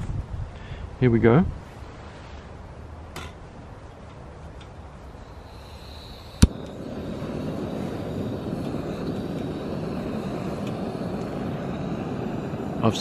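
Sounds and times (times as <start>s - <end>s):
gas burner rushing: 5.1s - 13.0s.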